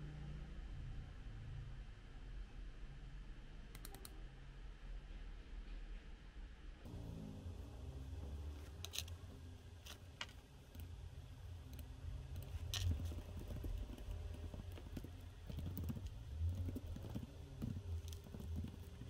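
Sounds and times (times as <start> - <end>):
typing on laptop keyboard: 12.4 - 19.0.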